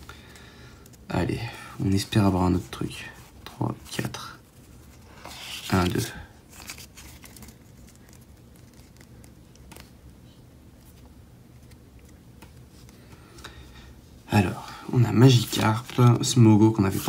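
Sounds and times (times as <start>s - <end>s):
low steady hum: 0.0s - 17.0s
cards shuffling: 3.9s - 13.4s, 15.2s - 17.0s.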